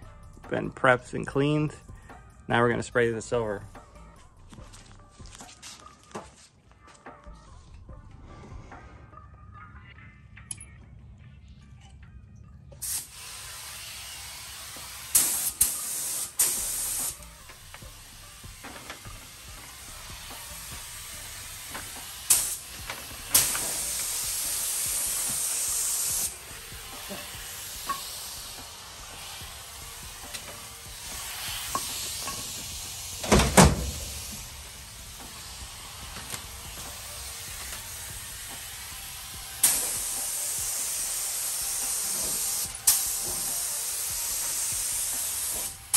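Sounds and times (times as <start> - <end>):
spray gun hissing: 12.8 - 45.9
loud thump: 33.2 - 34.0.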